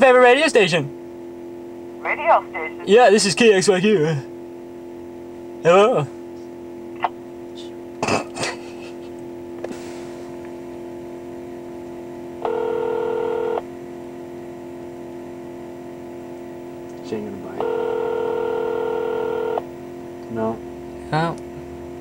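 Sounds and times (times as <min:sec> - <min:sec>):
steady low hum: 0:00.0 - 0:22.0
telephone beep: 0:12.4 - 0:13.6, 0:17.6 - 0:19.6.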